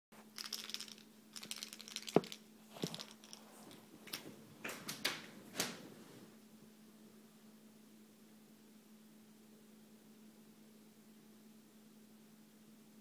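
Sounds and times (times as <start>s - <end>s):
faint steady hum: 0.2s - 13.0s
toy mouse rattling: 0.3s - 4.2s.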